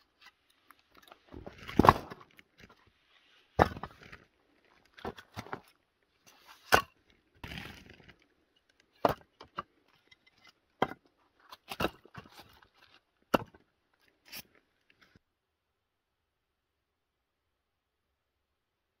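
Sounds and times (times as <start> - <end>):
firewood logs clunking: 0.9 - 2.8, 3.6 - 5.8, 6.6 - 13.8.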